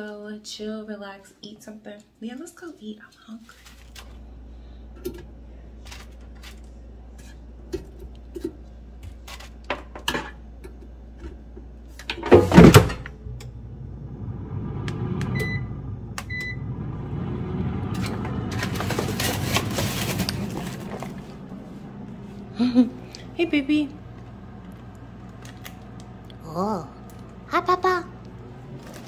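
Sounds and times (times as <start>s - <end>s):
air fryer fan rushing: 3.8s - 29.0s
short beeps: 15.3s - 16.8s.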